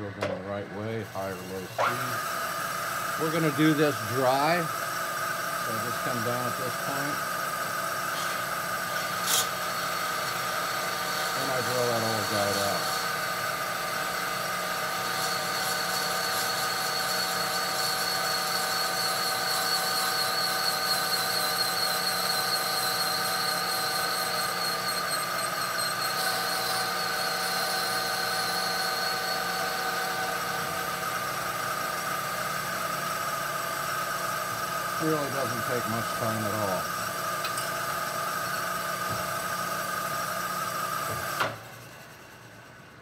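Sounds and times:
machining whine: 0:00.0 - 0:43.0.

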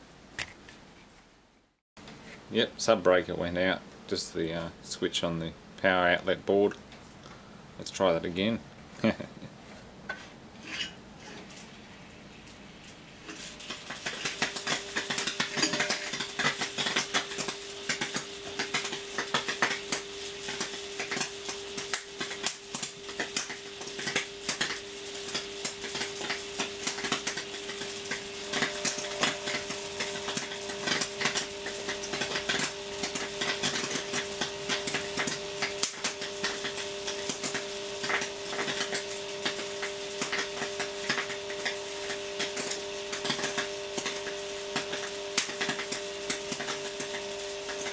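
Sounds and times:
electrical hum: 0:02.0 - 0:47.9
electric arcs crackling: 0:12.4 - 0:47.9.

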